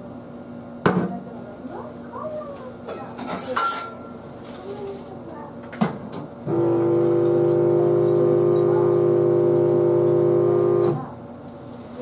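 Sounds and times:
electric motor hum: 0:06.4 - 0:11.2.

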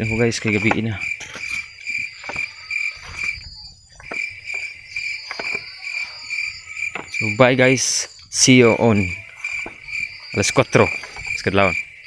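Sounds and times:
footsteps on dirt path: 0:00.0 - 0:07.5
crickets chirping: 0:00.0 - 0:12.0
insect high trill: 0:00.0 - 0:12.0.

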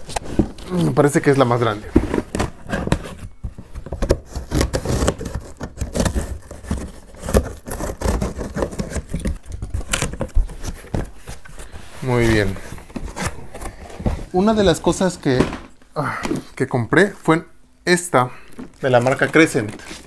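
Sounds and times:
packing tape scraping and tearing: 0:00.0 - 0:13.8, 0:18.8 - 0:20.0.

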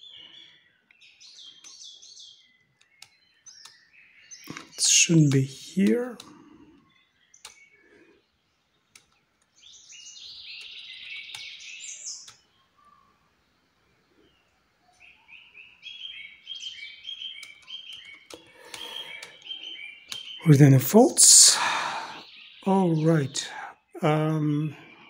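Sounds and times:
songbird chirping: 0:00.0 - 0:25.0
faint clicks: 0:02.6 - 0:03.8, 0:04.4 - 0:08.1, 0:08.7 - 0:09.6, 0:10.4 - 0:12.5, 0:17.3 - 0:20.4.

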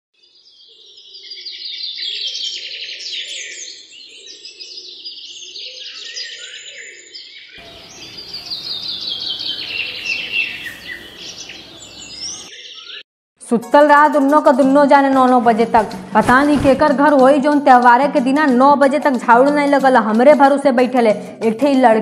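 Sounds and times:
small birds chirping: 0:00.3 - 0:13.0.

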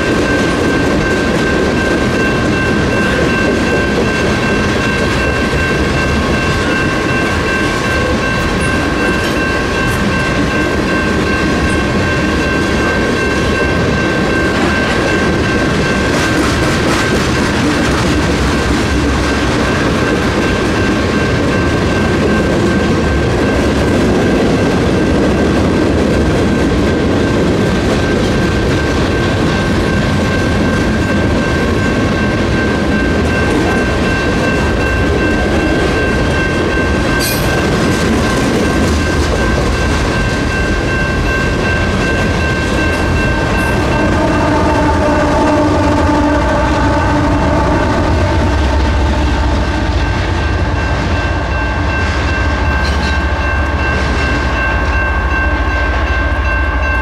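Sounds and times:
crossing warning bell ringing: 0:00.0 - 0:57.0
diesel locomotive engines humming: 0:00.0 - 0:57.0
freight train wheels clattering: 0:00.0 - 0:57.0.

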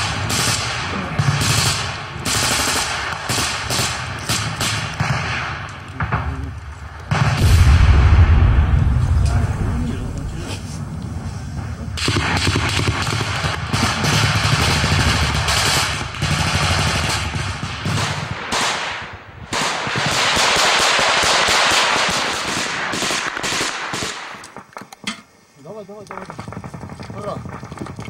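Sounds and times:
automatic gunfire: 0:00.0 - 0:06.3, 0:12.0 - 0:24.6.

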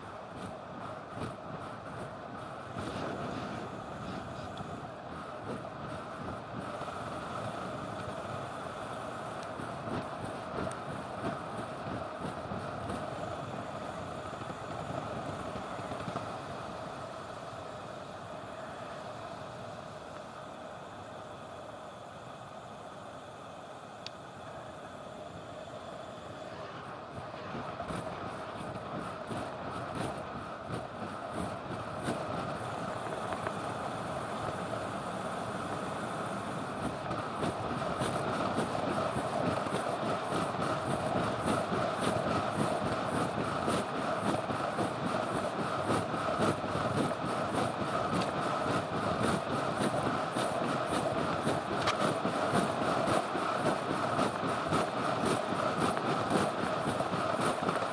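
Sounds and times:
bike tyres on asphalt: 0:00.0 - 0:57.9.

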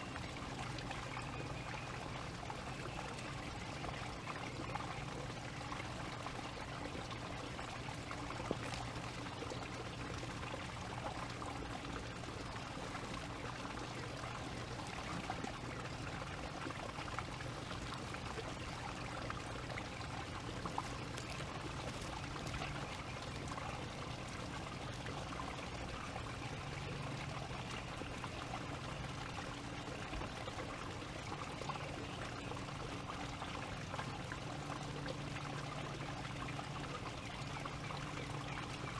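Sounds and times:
faint low hum: 0:00.0 - 0:38.9
small sharp ticks: 0:20.7 - 0:22.7.

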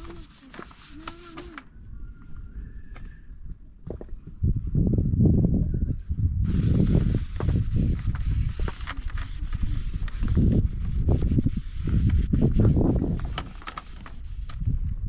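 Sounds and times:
hands scraping in plastic tray: 0:00.0 - 0:01.6.

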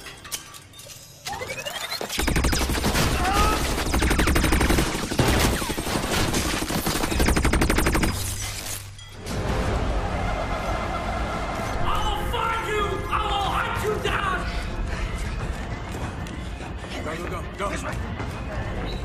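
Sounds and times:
rapid automatic gunfire: 0:02.2 - 0:08.3.

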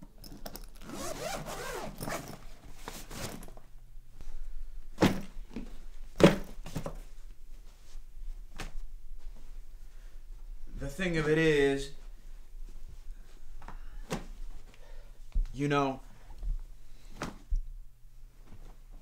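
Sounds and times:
zipper being drawn open: 0:00.8 - 0:02.4.

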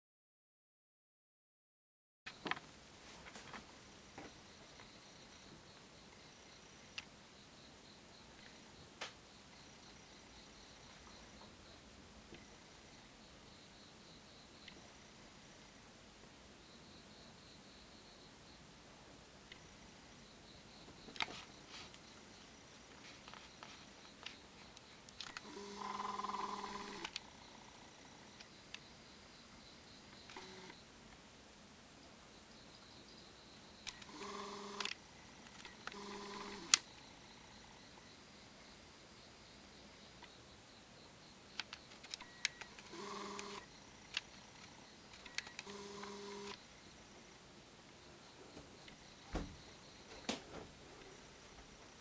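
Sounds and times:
camera lens motor buzzing: 0:25.3 - 0:27.2, 0:30.3 - 0:30.8, 0:33.9 - 0:35.0, 0:35.6 - 0:36.8, 0:42.7 - 0:43.7, 0:45.2 - 0:46.6.

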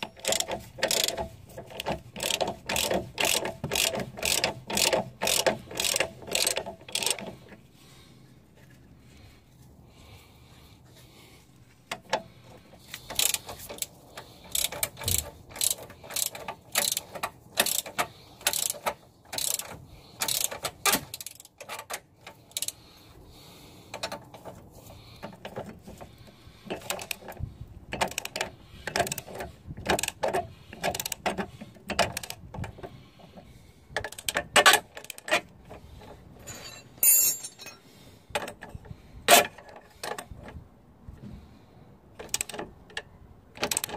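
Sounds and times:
socket ratchet clicking: 0:00.0 - 0:07.3, 0:14.5 - 0:22.8
metal tool clinking on bolt: 0:36.4 - 0:37.8.

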